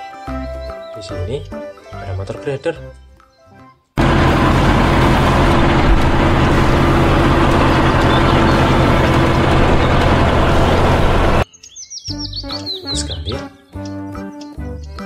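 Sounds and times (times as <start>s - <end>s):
grader engine running: 4.0s - 11.4s.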